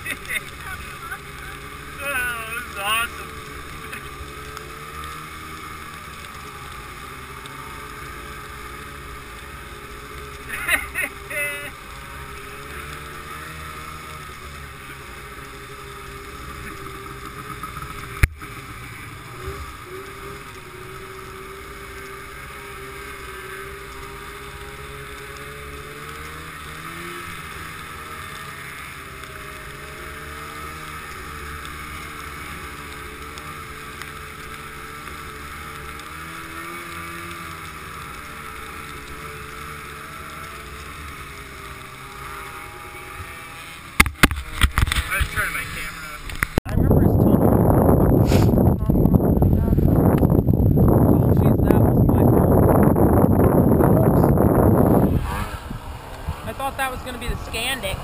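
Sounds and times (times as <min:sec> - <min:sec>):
snowmobile engine running: 0:00.0 - 0:58.0
wind on microphone: 0:44.0 - 0:58.0.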